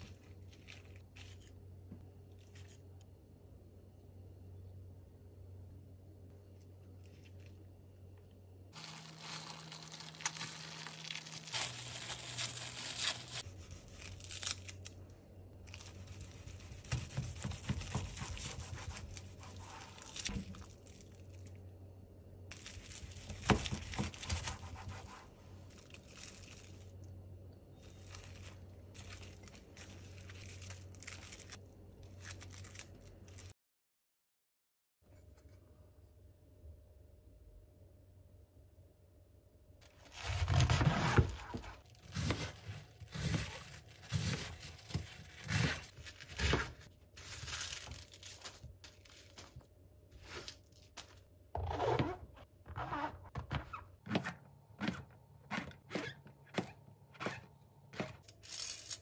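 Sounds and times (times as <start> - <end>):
wrap crinkling and rustling: 8.8 - 14.9, 27.8 - 33.5.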